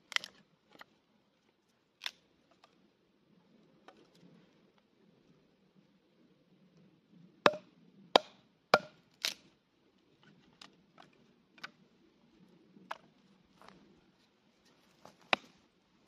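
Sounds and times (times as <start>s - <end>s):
hatchet splitting wood: 8.2s - 9.4s, 15.2s - 15.5s.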